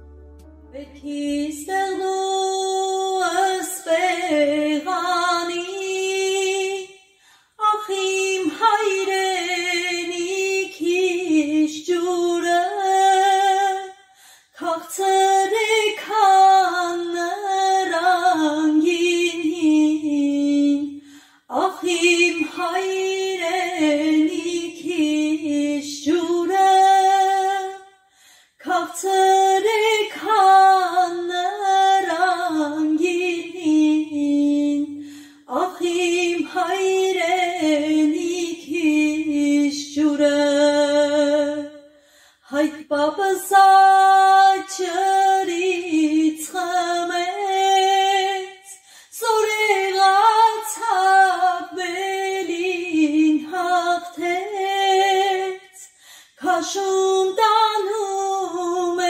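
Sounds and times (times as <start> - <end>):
woman singing unaccompanied: 0.7 - 7.0, 7.6 - 14.0, 14.6 - 27.8, 28.6 - 41.8, 42.5 - 59.0.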